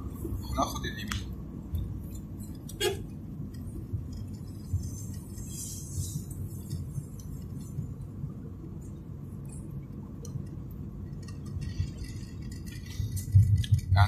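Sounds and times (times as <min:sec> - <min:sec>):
light clicks and rattles: 0:01.0 - 0:14.0.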